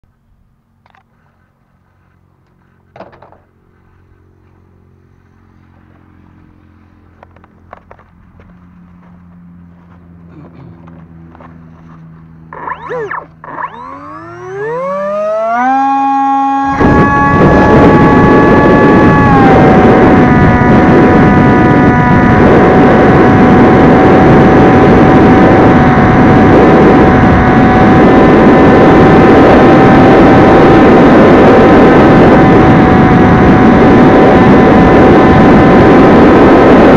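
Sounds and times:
electric motor and propeller whine: 0.1 - 36.9
steady low hum: 0.1 - 36.9
wind buffeting microphone: 12.5 - 36.9.

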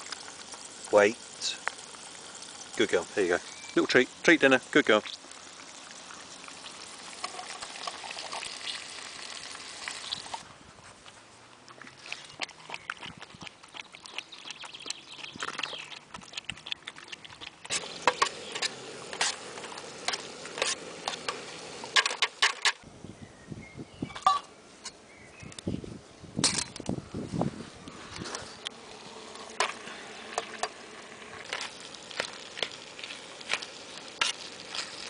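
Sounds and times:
food frying hiss: 0.0 - 10.4, 17.7 - 22.8, 27.9 - 35.0
dog lapping water: 11.8 - 21.2
metal spoon scraping a pan: 17.7 - 22.8, 33.4 - 35.0.

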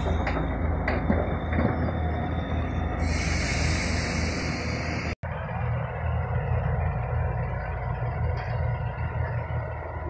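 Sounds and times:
diesel machinery rumbling: 0.0 - 10.0
hiss: 3.0 - 5.2.

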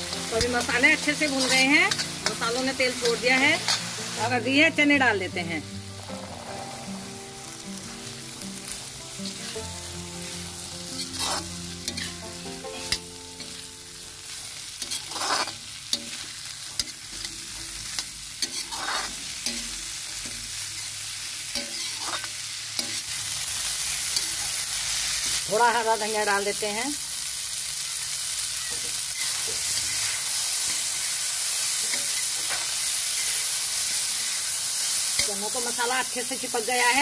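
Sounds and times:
chickpeas sizzling in hot oil: 0.0 - 37.0
metal spatula scraping pan: 0.2 - 2.4, 10.9 - 13.6, 14.8 - 19.8, 21.6 - 23.0.

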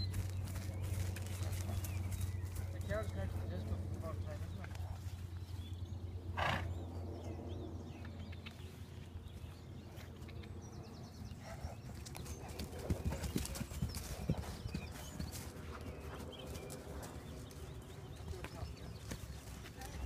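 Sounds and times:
horse hoofbeats on grass: 0.0 - 5.7, 11.6 - 20.0.

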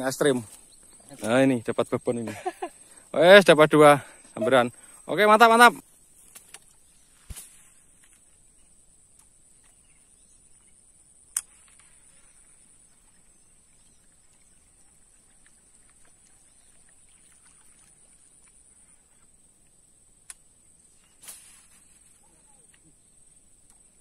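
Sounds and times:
faint ticks: 6.2 - 7.4, 9.0 - 9.8, 18.4 - 20.5, 23.6 - 24.0
sharp click: 11.3 - 11.9, 20.2 - 20.5.

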